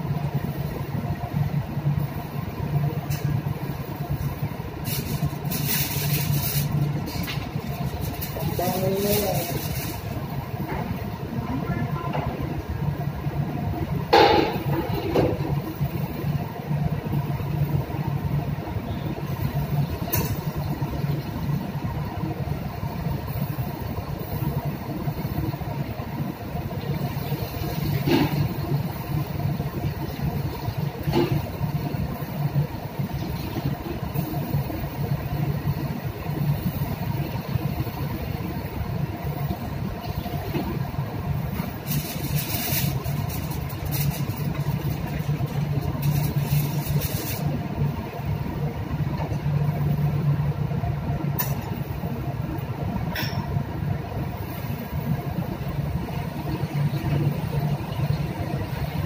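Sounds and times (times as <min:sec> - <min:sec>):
low machinery hum: 0:00.0 - 0:59.0
aluminium foil crinkling: 0:04.8 - 0:10.2, 0:41.6 - 0:47.6.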